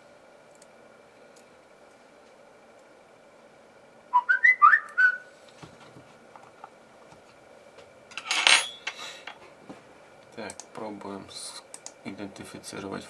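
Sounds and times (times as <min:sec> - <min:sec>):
whistled phrase: 0:04.1 - 0:05.3.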